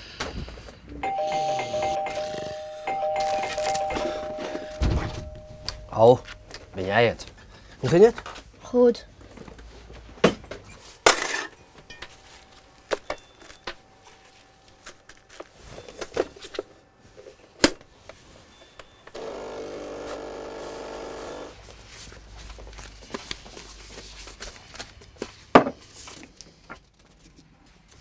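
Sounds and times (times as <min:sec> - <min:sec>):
coffee machine pump buzzing: 0:19.2 - 0:21.6.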